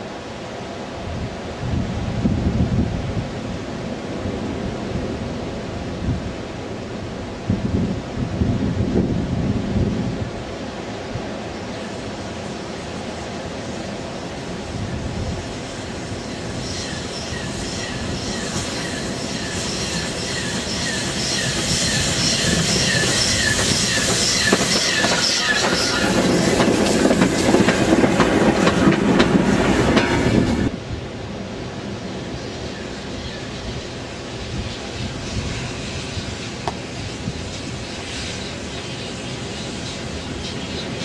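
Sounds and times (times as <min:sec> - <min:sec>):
steam locomotive passing: 0:00.0 - 0:41.0
repeating squeak: 0:16.7 - 0:26.5.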